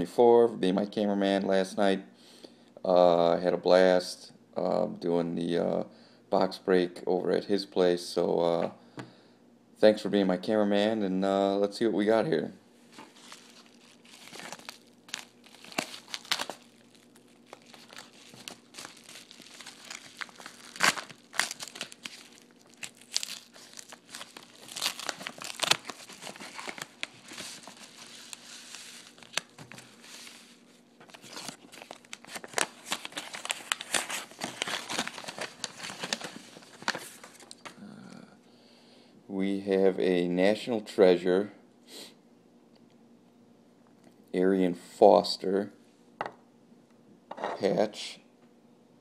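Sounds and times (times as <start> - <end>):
paper sheet rustling: 12.9 - 37.6
paper mailer tearing and crinkling: 13.0 - 37.6.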